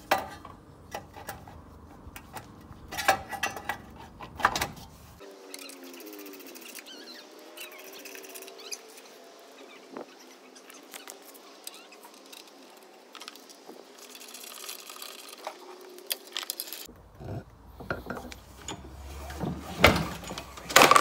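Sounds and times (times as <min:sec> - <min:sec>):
handling clicks and clatter: 0:10.7 - 0:16.9, 0:18.1 - 0:21.0.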